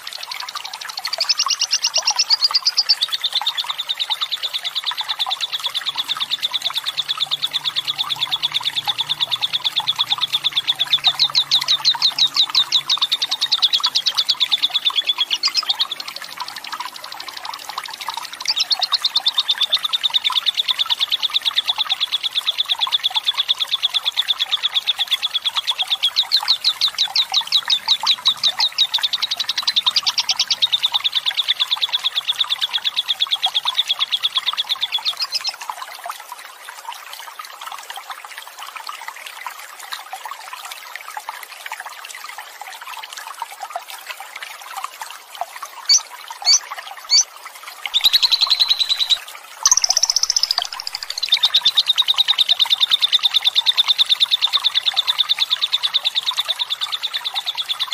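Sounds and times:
bird high-pitched chattering trill: 0:01.1 - 0:03.1, 0:04.9 - 0:16.0, 0:18.4 - 0:19.8, 0:34.8 - 0:35.6, 0:45.9 - 0:47.2, 0:48.0 - 0:53.3.

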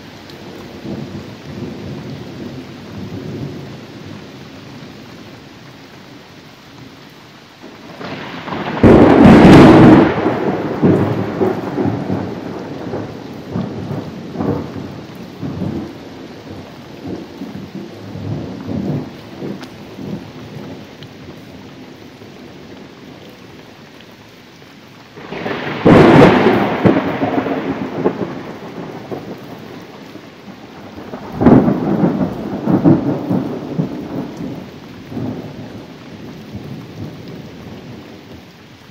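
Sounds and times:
steady rain: 0:00.0 - 0:38.9
thunderclaps rumbling: 0:07.8 - 0:23.2, 0:25.2 - 0:38.4.

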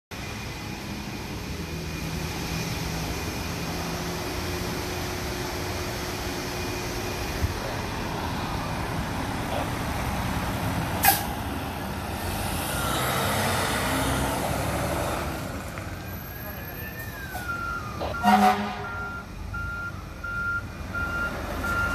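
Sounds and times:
fire engine diesel engine: 0:00.1 - 0:21.9
air brake hiss: 0:11.0 - 0:11.4.

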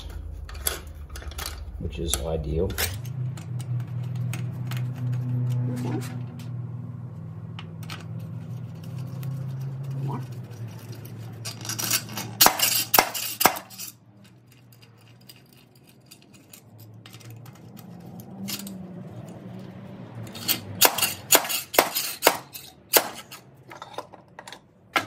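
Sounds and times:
slide hammer clanking metal: 0:11.4 - 0:14.0, 0:20.3 - 0:25.0.

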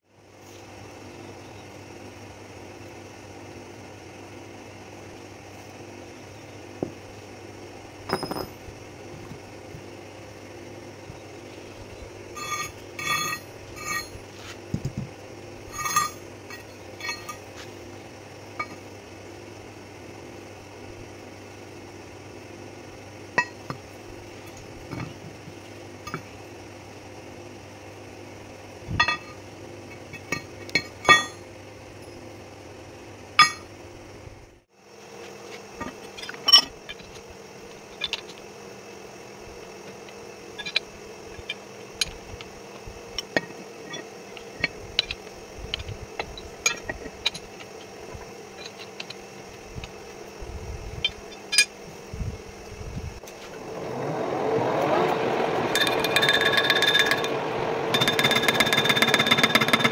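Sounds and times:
steel clinks and knocks: 0:08.1 - 0:08.6, 0:12.4 - 0:14.2, 0:15.7 - 0:17.5, 0:29.0 - 0:29.4, 0:30.2 - 0:31.4, 0:33.4 - 0:33.7, 0:43.2 - 0:47.6
lathe running with whine: 0:08.1 - 0:21.3, 0:36.2 - 0:59.9.

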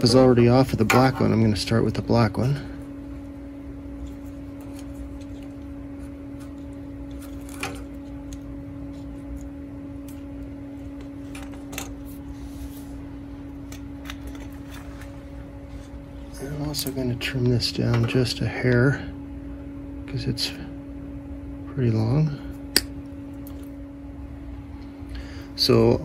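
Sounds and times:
steady hum: 0:00.0 - 0:26.0
wires clicking and rustling: 0:03.9 - 0:12.2, 0:13.5 - 0:15.2.

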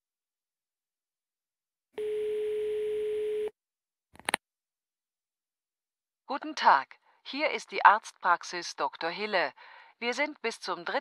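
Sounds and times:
telephone line tone: 0:02.0 - 0:03.6.

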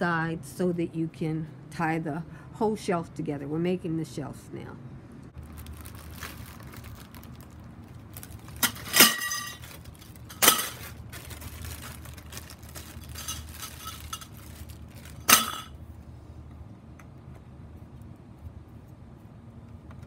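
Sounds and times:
metal poles clanking together: 0:08.6 - 0:09.6, 0:10.3 - 0:10.9, 0:15.2 - 0:15.7.

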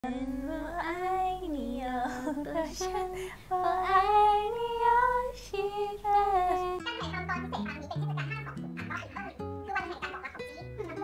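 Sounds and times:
woman singing: 0:00.0 - 0:06.9.

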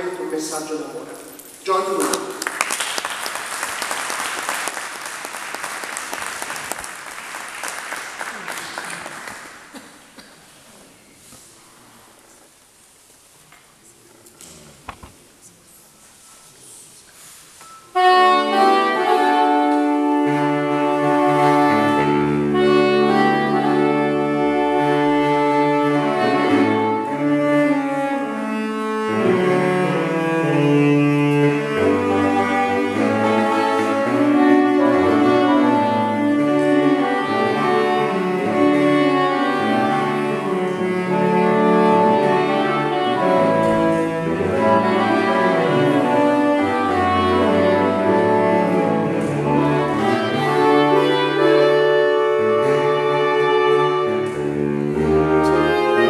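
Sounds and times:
saxophone quartet playing: 0:17.9 - 0:56.0.

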